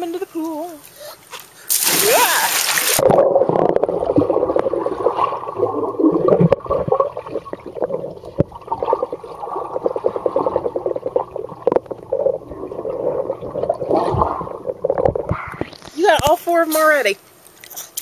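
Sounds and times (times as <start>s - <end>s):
underwater gurgling and crackling: 2.7s - 16.3s.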